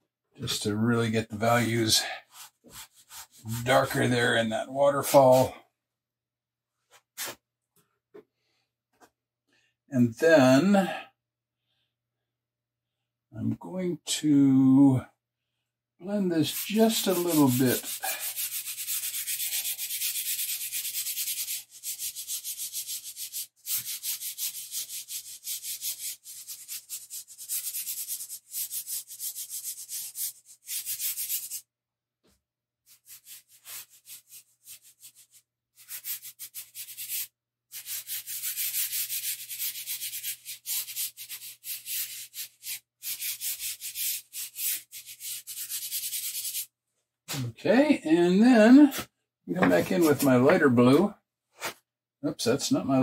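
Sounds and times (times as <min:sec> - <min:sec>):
fingers rubbing pastel on paper: 0:02.3 - 0:03.5, 0:16.4 - 0:31.6, 0:32.9 - 0:46.7.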